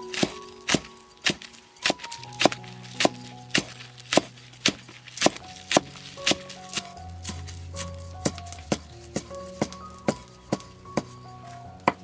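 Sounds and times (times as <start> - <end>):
soft background music: 0.0 - 12.0
knife chopping on wooden board: 0.2 - 7.4.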